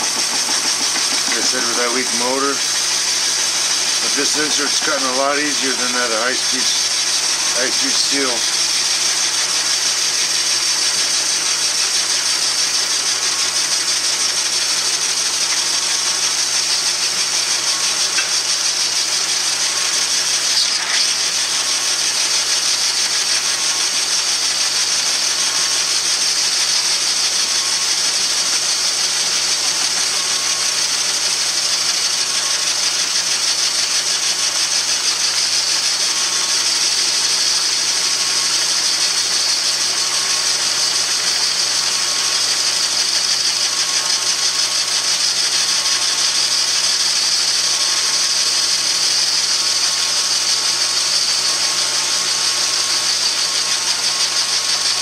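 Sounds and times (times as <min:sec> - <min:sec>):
high hiss of metal cutting: 0:00.0 - 0:13.7, 0:14.5 - 0:27.0
lathe motor and gears humming: 0:00.0 - 0:55.0.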